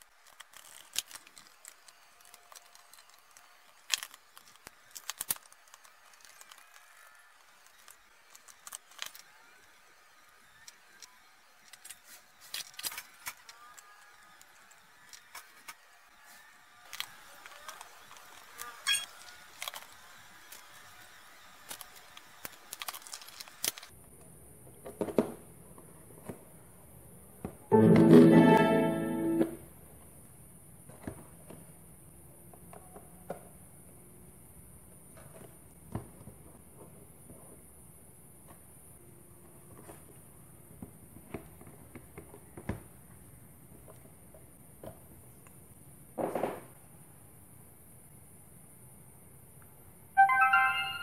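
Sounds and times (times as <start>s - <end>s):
strummed guitar chord: 27.7s - 29.6s.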